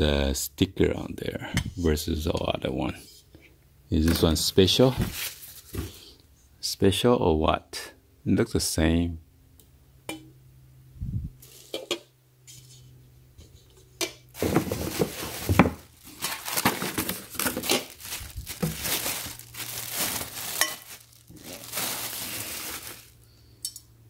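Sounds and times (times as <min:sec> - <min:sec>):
pan knocking packaging: 0:14.4 - 0:23.1
plastic bag crinkling: 0:14.4 - 0:23.3.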